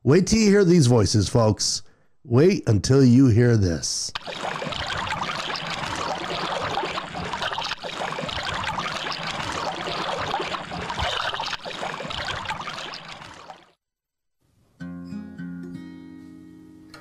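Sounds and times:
waves lapping over rocks: 0:04.2 - 0:13.7.

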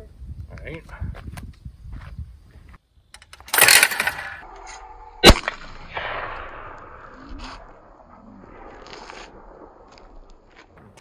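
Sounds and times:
shotgun shot with echo: 0:05.2 - 0:07.2.

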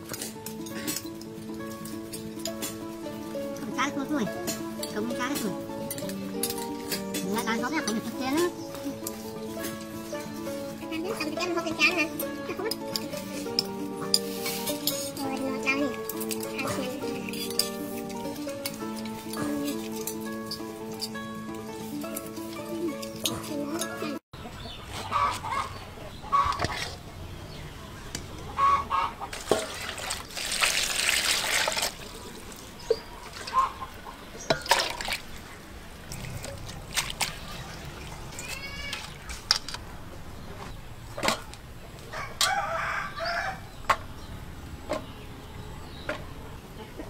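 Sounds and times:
chickens clucking: 0:22.2 - 0:27.0, 0:28.4 - 0:29.4, 0:33.4 - 0:34.3, 0:45.9 - 0:47.0
water splashing in steel bowl: 0:29.3 - 0:33.8, 0:34.4 - 0:35.5, 0:36.1 - 0:39.4
rooster crowing: 0:42.1 - 0:43.7.

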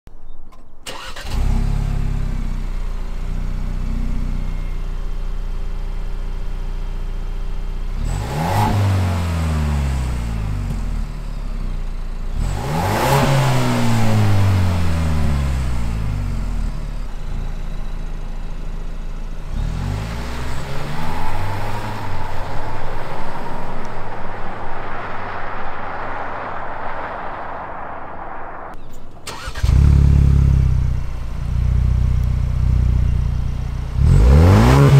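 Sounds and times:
car pulling away: 0:00.8 - 0:34.9
car engine revving: 0:05.6 - 0:34.9
car engine idling: 0:13.6 - 0:34.2.

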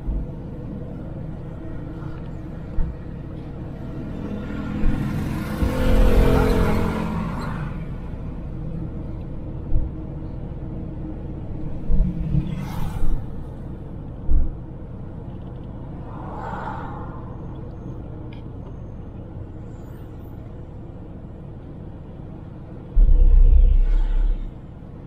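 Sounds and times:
car road and engine rumble: 0:00.0 - 0:25.0
passing vehicle engine: 0:01.4 - 0:08.5.

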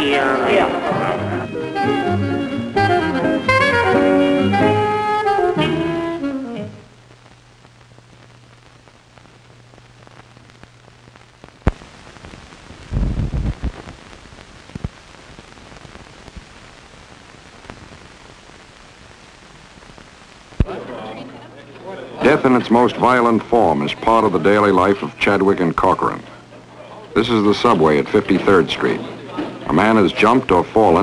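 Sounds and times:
jazz music with saxophone: 0:00.0 - 0:07.0
low steady hiss: 0:00.0 - 0:31.0.

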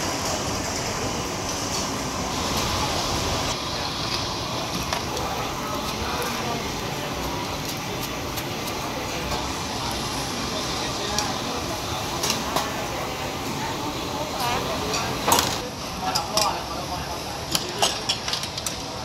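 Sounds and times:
street stall background din: 0:00.0 - 0:19.0
cooking utensils clicking: 0:17.5 - 0:19.0.

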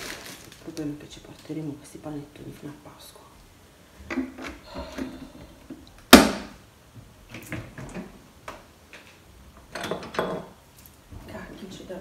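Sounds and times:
household objects knocking and clattering: 0:09.6 - 0:10.6.

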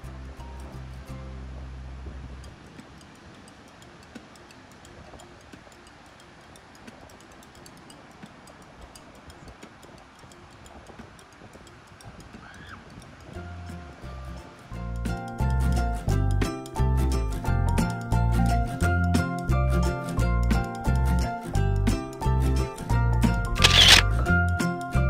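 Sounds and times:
faint rapid ticking: 0:02.4 - 0:13.4
background music: 0:13.4 - 0:25.0.

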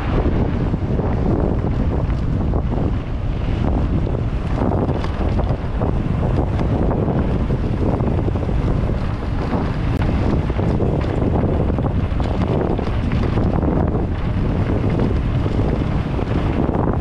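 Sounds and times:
tyre noise on dirt: 0:00.0 - 0:17.0
wind buffeting microphone: 0:00.0 - 0:17.0
bike clicks and knocks: 0:04.4 - 0:16.8.

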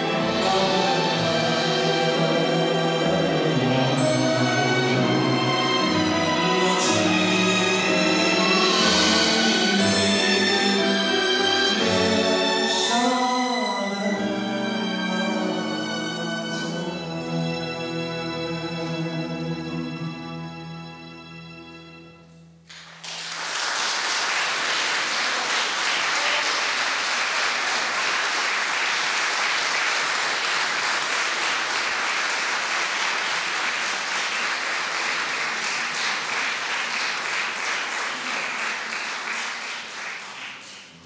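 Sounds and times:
large audience applauding: 0:22.7 - 0:41.0.

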